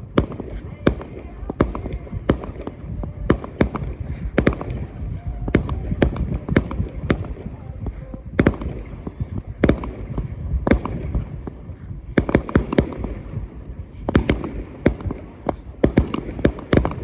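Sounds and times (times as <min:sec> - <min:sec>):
fireworks bursting: 0:00.0 - 0:17.0.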